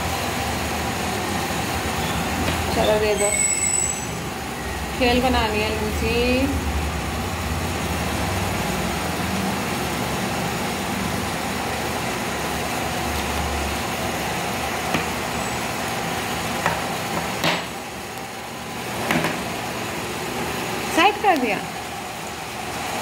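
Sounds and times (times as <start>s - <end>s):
mechanical room hum: 0.0s - 23.0s.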